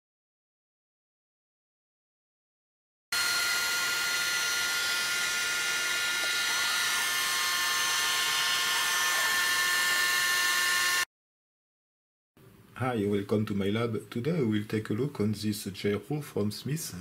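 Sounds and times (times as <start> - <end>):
gyro rotor high whine: 3.2 - 11.1.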